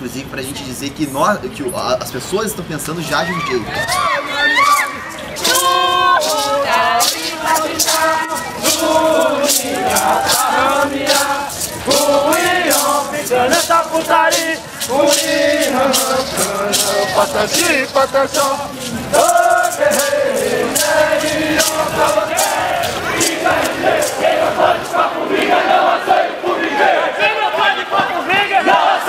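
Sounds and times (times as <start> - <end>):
gourd rattle shaken: 3.8 - 25.9
group chanting in unison: 4.0 - 29.0.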